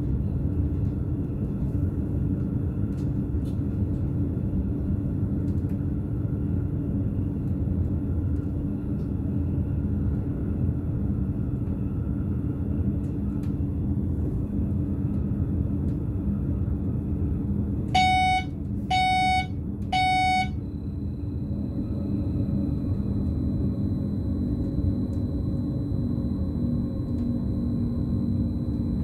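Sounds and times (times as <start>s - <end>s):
train rumbling at speed: 0.0s - 29.0s
cab warning beeps: 18.0s - 20.6s.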